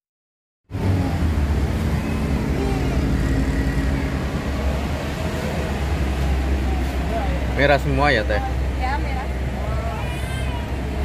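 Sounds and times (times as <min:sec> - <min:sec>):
road traffic: 0:00.7 - 0:11.0
vehicle engine rumble: 0:00.7 - 0:11.0.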